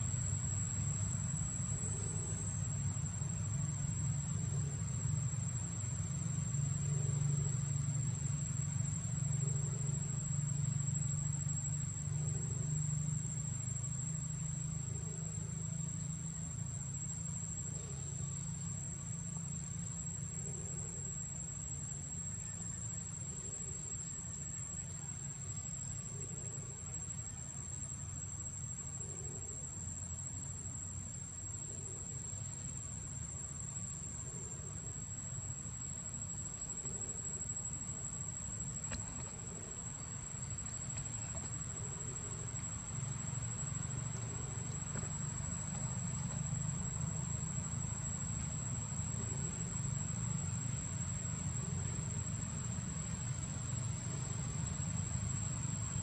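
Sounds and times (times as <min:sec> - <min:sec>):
insects droning: 0:00.0 - 0:56.0.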